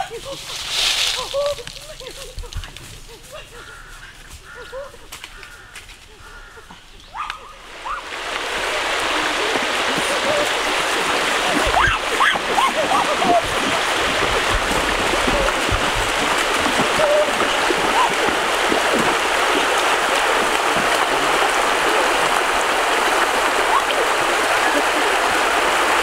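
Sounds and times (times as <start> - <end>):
stream water flowing over rocks: 7.6 - 26.0.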